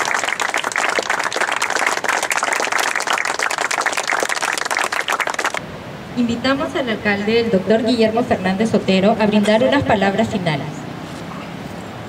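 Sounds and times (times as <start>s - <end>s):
crowd applauding: 0.0s - 5.6s.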